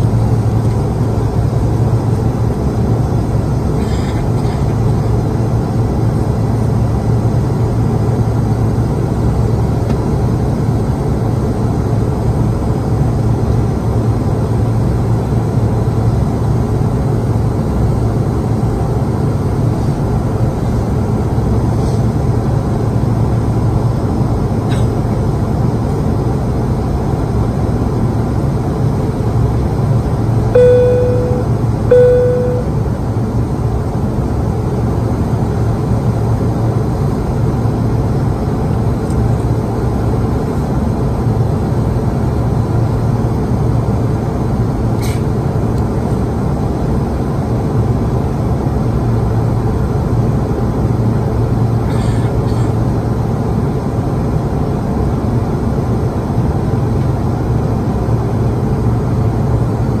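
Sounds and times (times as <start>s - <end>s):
airplane cabin engine hum: 0.0s - 33.0s
electronic cabin chime: 30.6s - 32.8s.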